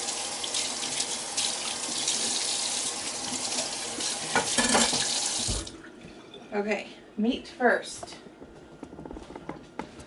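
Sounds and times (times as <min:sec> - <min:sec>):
tap running into sink: 0:03.3 - 0:05.8
knocks and clatter in sink: 0:04.3 - 0:05.8.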